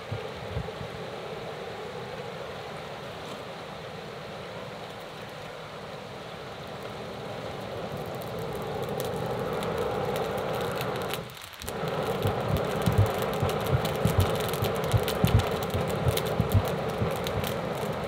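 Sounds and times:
fire crackling: 4.7 - 18.0
bellows air rushing hiss: 7.2 - 18.0.

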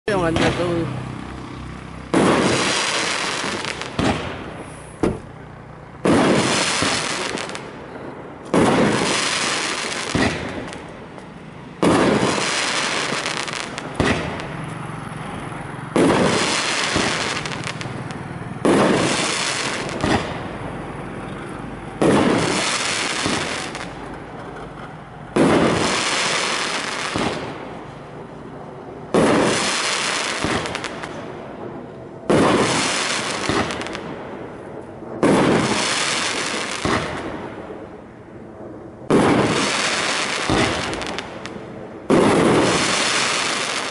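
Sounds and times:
fireworks bangs: 0.1 - 1.1, 1.7 - 14.9, 15.9 - 20.6, 21.8 - 38.1, 39.0 - 43.9
fireworks pops: 2.1 - 5.3, 8.4 - 14.6, 18.6 - 20.4, 22.0 - 27.6, 32.3 - 34.0, 35.2 - 37.3, 39.1 - 43.9.

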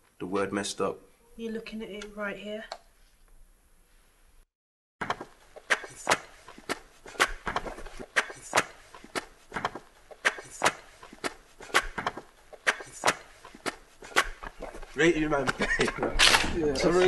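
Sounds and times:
sharp knocks: 5.0 - 14.8.

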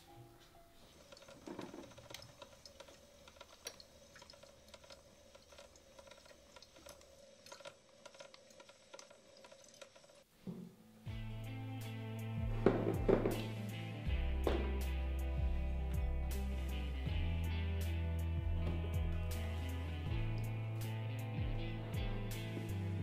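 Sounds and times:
music with deep bass note: 11.1 - 23.0.

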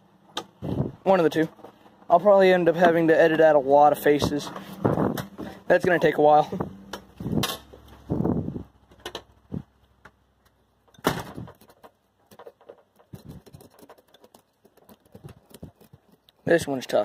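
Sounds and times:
door knocking open and shut: 11.0 - 12.6
knife scraping fish scales: 13.0 - 16.6.

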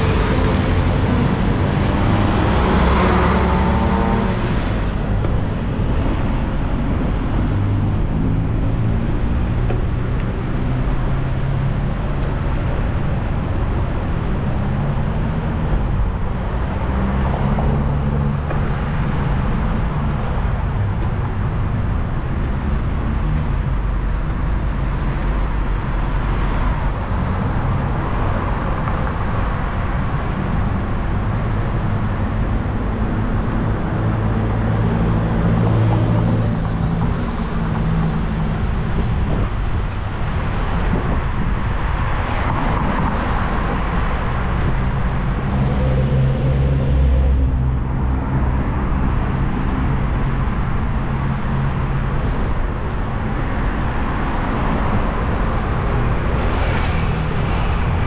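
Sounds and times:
cars passing: 0.0 - 58.0
traffic rumble: 0.0 - 58.0.

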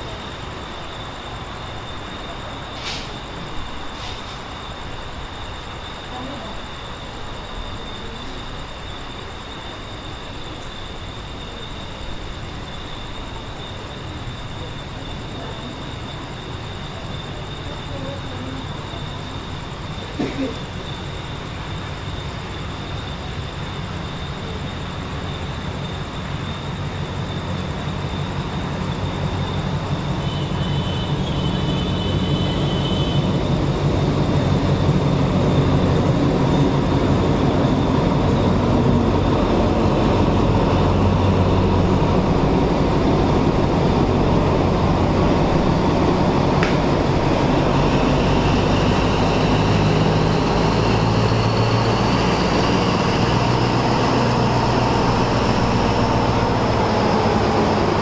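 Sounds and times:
locomotive engine drone: 0.0 - 58.0
train wheel noise: 0.0 - 58.0
sharp click: 46.6 - 46.9.

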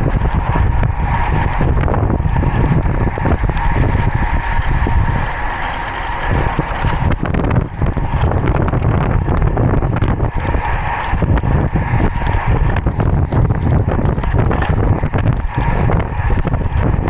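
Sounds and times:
bike tyres on rough asphalt: 0.0 - 17.0
wind buffeting microphone: 0.0 - 17.0.

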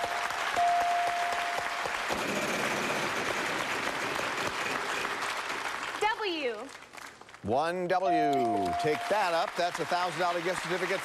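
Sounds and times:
studio audience applauding: 0.0 - 7.5, 8.1 - 11.0
prize wheel ticking: 8.1 - 9.3.

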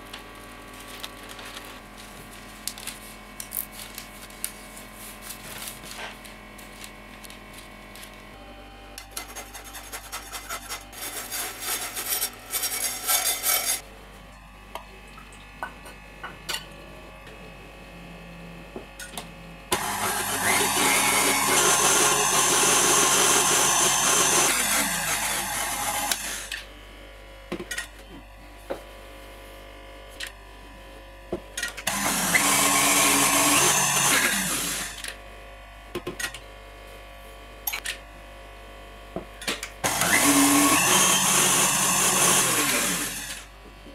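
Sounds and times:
stand mixer whisking: 19.8 - 26.4, 39.9 - 43.4.

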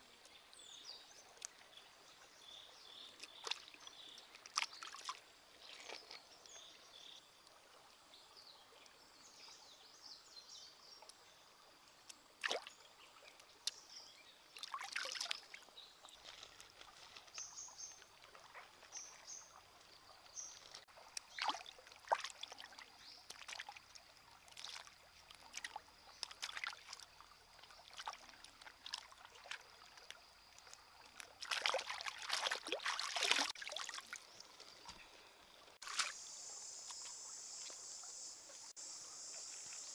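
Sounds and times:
crackles and splashes: 0.0 - 9.0, 10.9 - 36.2
stream trickling over rocks: 0.0 - 39.9
clicks and small splashes: 1.2 - 1.8, 3.0 - 7.7, 11.9 - 36.2.

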